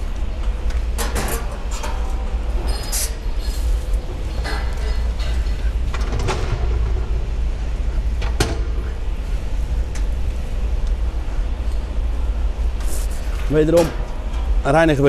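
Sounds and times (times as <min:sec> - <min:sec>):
steady low rumble: 0:00.0 - 0:15.0
metal manhole covers clanking: 0:01.0 - 0:07.1.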